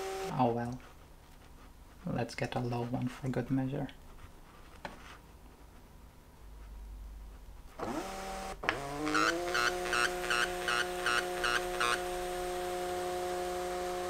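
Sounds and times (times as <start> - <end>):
thermal printer motor whine: 7.8 - 14.0.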